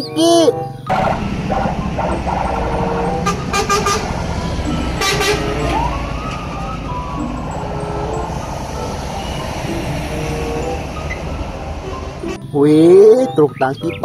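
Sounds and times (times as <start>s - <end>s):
lorry diesel engine rumble: 0.0s - 14.0s
rising and falling whine: 0.9s - 12.4s.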